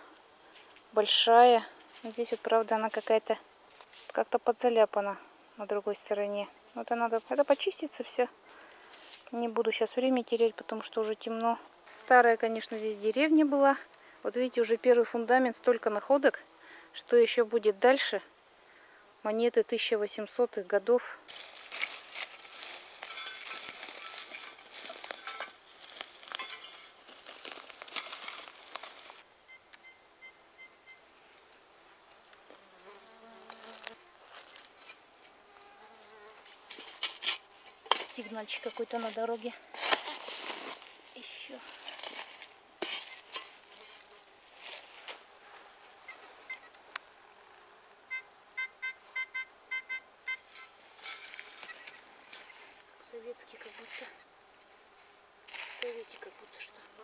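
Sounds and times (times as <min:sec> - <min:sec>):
dense rustling and crackling: 0:21.3 - 0:29.3, 0:33.4 - 0:47.1, 0:50.4 - 0:57.0
metal detector beeping: 0:29.5 - 0:31.0, 0:48.1 - 0:50.7, 0:51.6 - 0:52.0.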